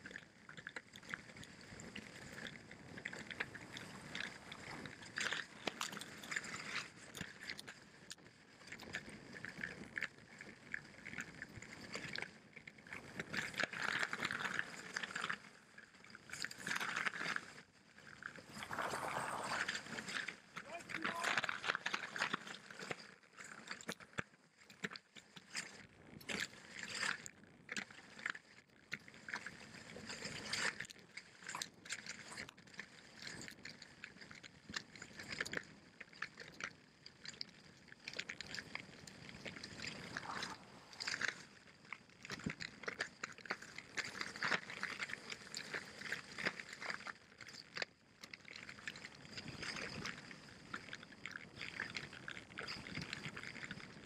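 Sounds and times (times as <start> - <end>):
skis sliding over snow: 18.3 - 22.7, 39.0 - 41.6.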